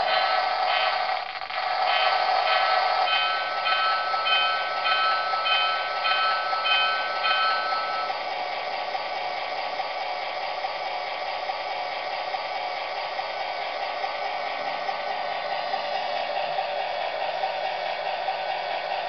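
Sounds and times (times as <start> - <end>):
electronic locomotive bell: 0.0 - 8.8.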